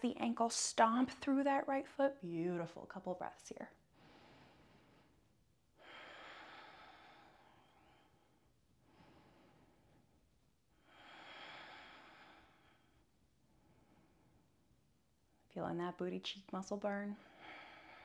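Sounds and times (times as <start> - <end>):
person breathing slowly: 3.9 - 10.2, 10.8 - 14.6, 17.2 - 18.0.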